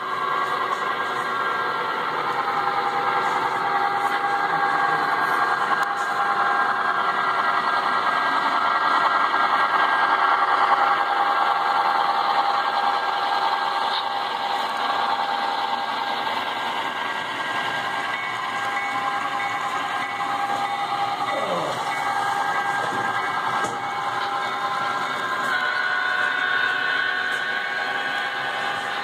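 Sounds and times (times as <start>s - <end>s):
model train locomotive drone: 0.0s - 29.0s.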